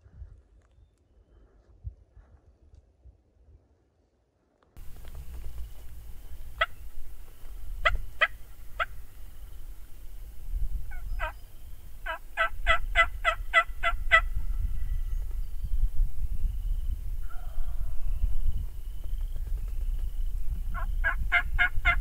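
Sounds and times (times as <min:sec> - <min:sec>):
wild turkey yelps: 0:05.3 - 0:10.1, 0:10.9 - 0:14.3, 0:20.7 - 0:22.0.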